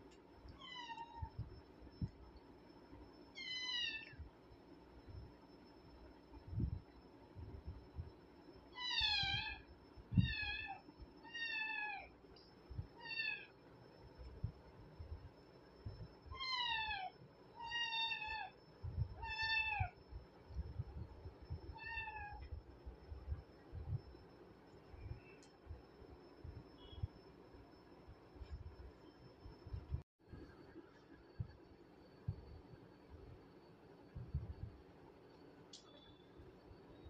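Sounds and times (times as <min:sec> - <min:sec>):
soft low thumps: 0:34.2 - 0:34.8.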